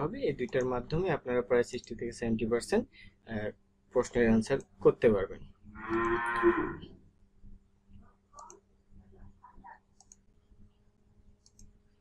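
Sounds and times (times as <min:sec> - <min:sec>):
low steady hum: 0:00.0 - 0:12.0
computer mouse clicks: 0:08.4 - 0:08.6, 0:10.0 - 0:10.2, 0:11.4 - 0:11.8.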